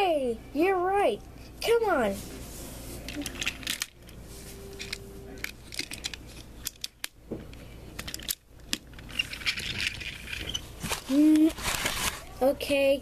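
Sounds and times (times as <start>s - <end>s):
toy trains clicking and knocking: 3.1s - 3.9s, 4.8s - 7.1s, 8.0s - 10.6s.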